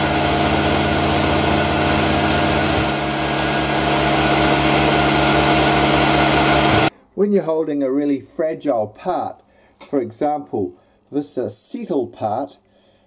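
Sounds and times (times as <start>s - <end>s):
milling machine cutting plastic: 0.0s - 6.9s.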